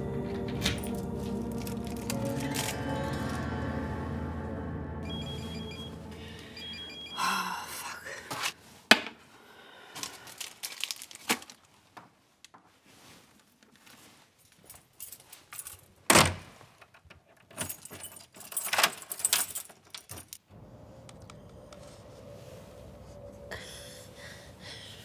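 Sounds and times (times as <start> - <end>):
keys jangling at a door lock: 14.6 - 15.9, 17.0 - 20.4.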